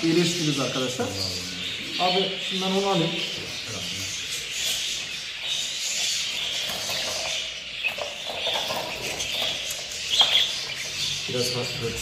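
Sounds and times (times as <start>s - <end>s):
budgerigar chattering: 0.0s - 12.0s.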